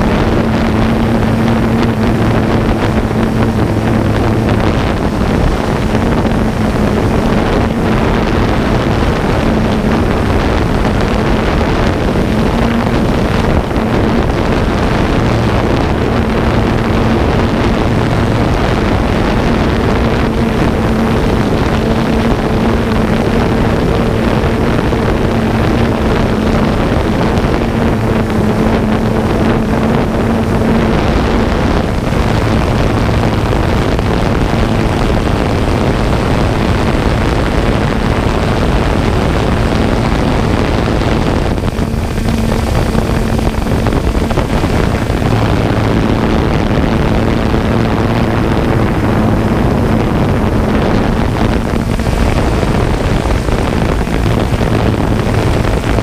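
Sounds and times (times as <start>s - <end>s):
drone propellers buzzing: 0.0s - 56.0s
wind noise on microphone: 0.0s - 56.0s.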